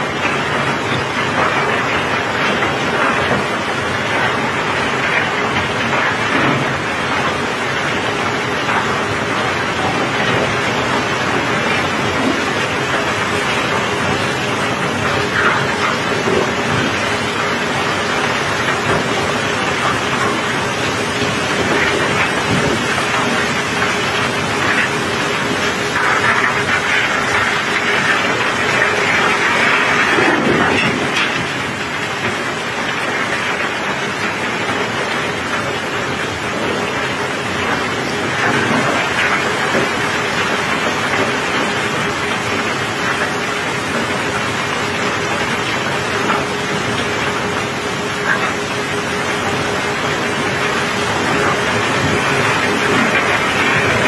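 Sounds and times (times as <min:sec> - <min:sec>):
heavy rain: 0:00.0 - 0:54.0
cobblestones sliding and clattering: 0:00.2 - 0:35.6.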